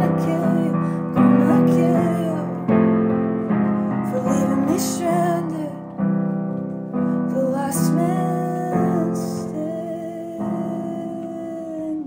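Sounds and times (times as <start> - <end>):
woman singing long notes: 0.0 - 2.6, 4.0 - 5.9, 7.3 - 12.0
piano chords: 0.0 - 12.0.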